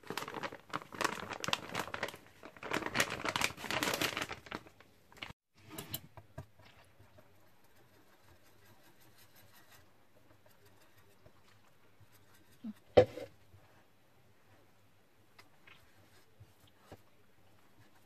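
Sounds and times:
plastic bag crinkling: 0:00.0 - 0:05.4.

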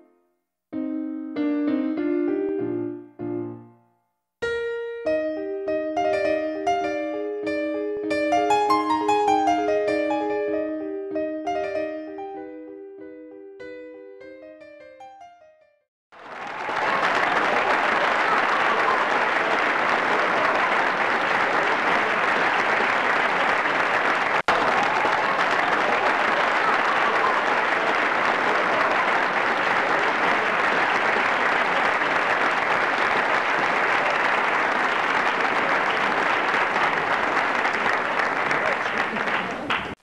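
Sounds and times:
crowd applause: 0:16.2 - 0:40.0.

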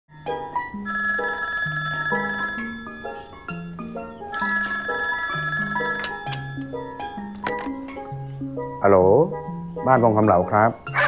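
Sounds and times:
desk telephone ringing: 0:00.1 - 0:07.9.

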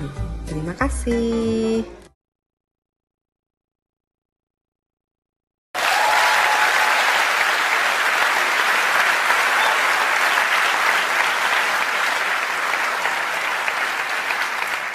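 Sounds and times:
crowd applause: 0:05.8 - 0:14.9.

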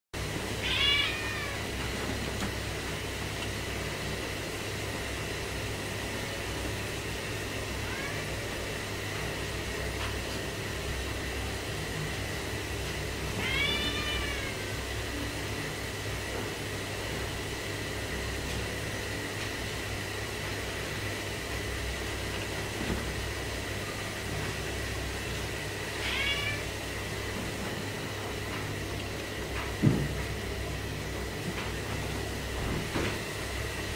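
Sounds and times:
low background hum: 0:00.2 - 0:33.9
cat meowing: 0:00.6 - 0:01.8, 0:07.8 - 0:08.6, 0:13.3 - 0:14.8, 0:26.0 - 0:26.7.

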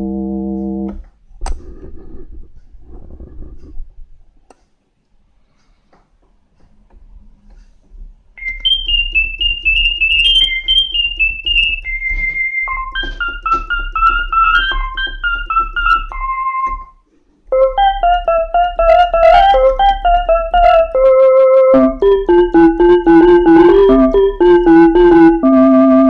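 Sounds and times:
electronic keyboard melody: 0:00.0 - 0:01.0, 0:08.4 - 0:26.0.

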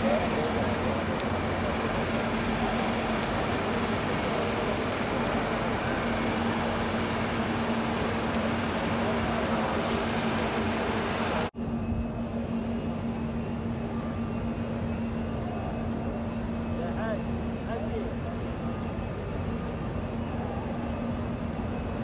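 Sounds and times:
rushing crowd noise: 0:00.0 - 0:11.5.

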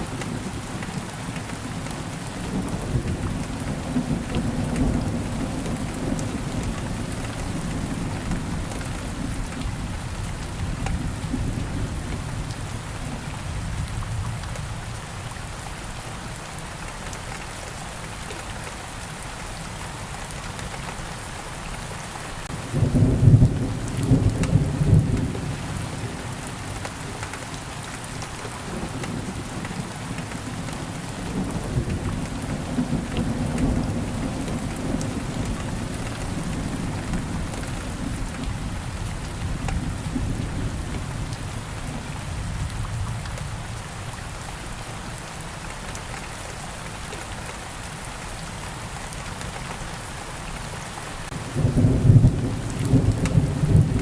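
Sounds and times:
steady rain: 0:00.0 - 0:54.0
thunder rumbling: 0:51.3 - 0:54.0.

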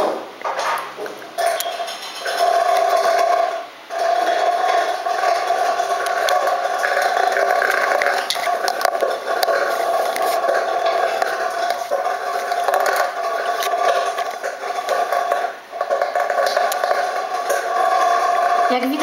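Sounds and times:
hailstones hitting: 0:00.0 - 0:19.0
heavy rain rushing: 0:01.1 - 0:19.0.

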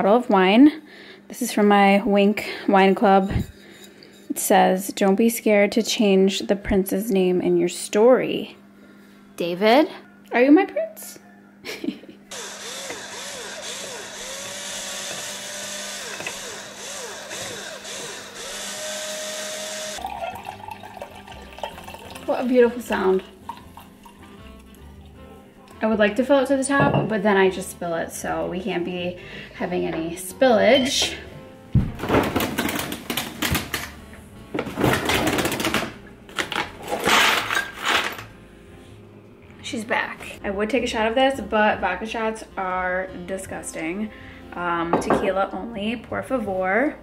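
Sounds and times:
things clattering in a refrigerator: 0:03.0 - 0:04.1, 0:30.8 - 0:38.4
electric wine opener motor whirring: 0:12.3 - 0:22.4
wine glugging into a glass: 0:20.0 - 0:22.3.

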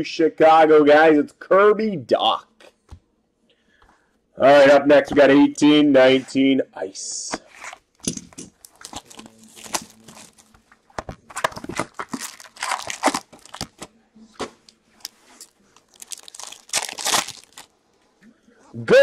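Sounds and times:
foil wrapper tearing: 0:08.6 - 0:10.6, 0:11.3 - 0:13.8, 0:15.0 - 0:17.7
cardboard box being opened: 0:08.7 - 0:13.8.

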